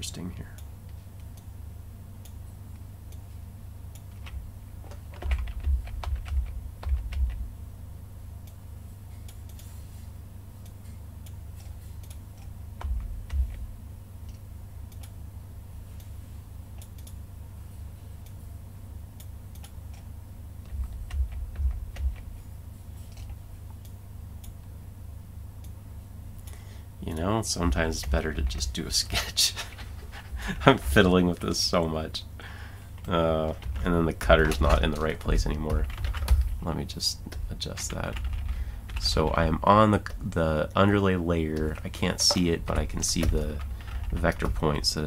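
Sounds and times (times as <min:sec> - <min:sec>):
steady low hum: 0:00.0 - 0:45.0
keyboard keys clicking: 0:04.0 - 0:07.4, 0:19.5 - 0:22.3, 0:33.0 - 0:36.6, 0:37.3 - 0:39.3, 0:41.6 - 0:44.9
low thuds: 0:12.8 - 0:13.8, 0:20.7 - 0:22.4.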